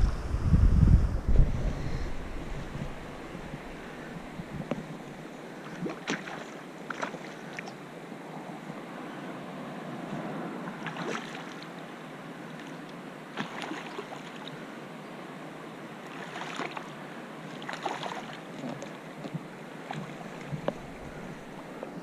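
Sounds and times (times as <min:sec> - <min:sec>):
river water flowing and lapping: 0:00.0 - 0:22.0
water splashing slosh: 0:02.2 - 0:07.7, 0:10.8 - 0:11.7, 0:13.3 - 0:14.5, 0:16.1 - 0:16.9, 0:17.6 - 0:18.4.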